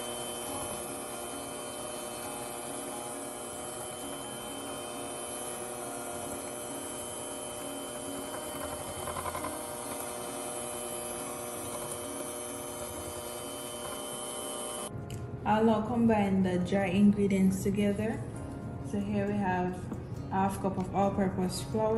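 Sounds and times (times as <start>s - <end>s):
electric hand mixer whipping: 0.0s - 14.9s.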